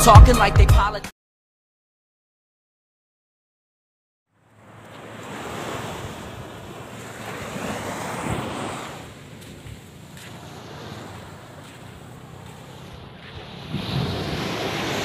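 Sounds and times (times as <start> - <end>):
wind buffeting microphone: 5.2 - 15.0.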